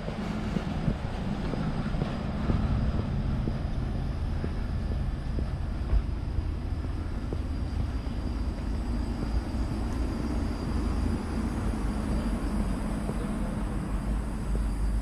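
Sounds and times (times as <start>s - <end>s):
footsteps walking: 0.0s - 10.0s
low rumble on microphone: 0.0s - 15.0s.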